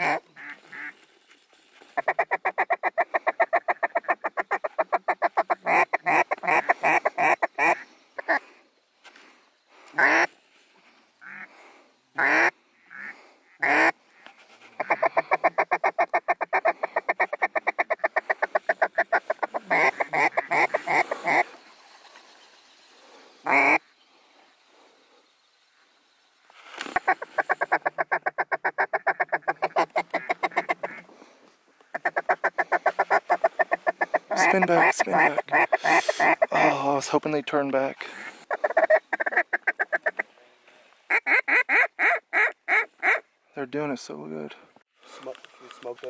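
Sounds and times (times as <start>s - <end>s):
duck call rapid notes: 0.0s - 0.9s, 2.0s - 8.4s, 10.0s - 10.3s, 12.2s - 14.0s, 14.8s - 21.4s, 23.4s - 23.8s, 27.0s - 31.0s, 31.9s - 36.8s, 38.1s - 40.2s, 41.1s - 43.2s
duck quacks: 0.0s - 0.9s, 2.0s - 8.4s, 9.9s - 10.3s, 11.2s - 11.6s, 12.2s - 21.5s, 23.4s - 23.8s, 27.0s - 31.0s, 31.9s - 36.8s, 38.0s - 40.3s, 41.1s - 43.3s.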